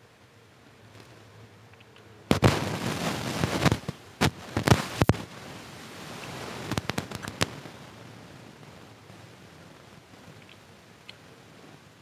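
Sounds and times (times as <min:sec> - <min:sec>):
mouth clicks: 0:06.2 - 0:07.6, 0:10.4 - 0:11.2.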